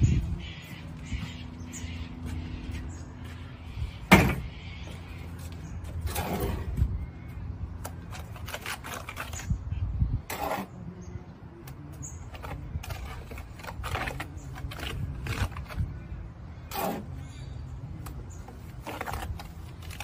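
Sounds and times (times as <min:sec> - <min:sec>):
steady low rumble: 0:00.0 - 0:08.6
trowel scraping in a wheelbarrow: 0:05.8 - 0:06.9, 0:08.0 - 0:09.6, 0:10.2 - 0:10.9, 0:12.2 - 0:15.9, 0:16.7 - 0:17.5, 0:18.4 - 0:20.0.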